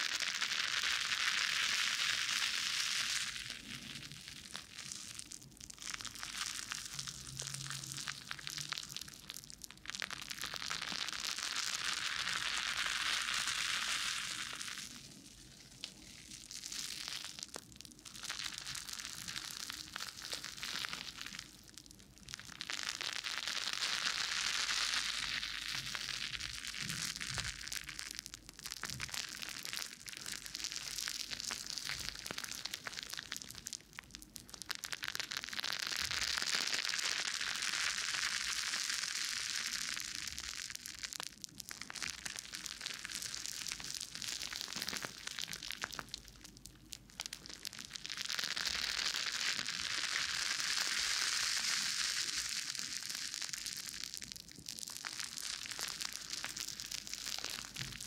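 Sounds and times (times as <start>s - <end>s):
wet crackling of foam bubbles: 0.0s - 58.0s.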